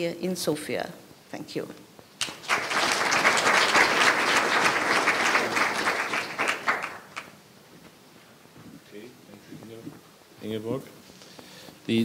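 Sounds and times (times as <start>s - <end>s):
audience applauding: 2.2s - 7.4s.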